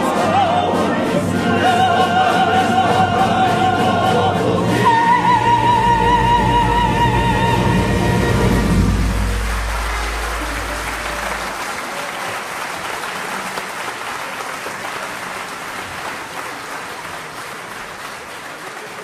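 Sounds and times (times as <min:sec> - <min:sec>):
audience applause: 0:08.9 - 0:19.0.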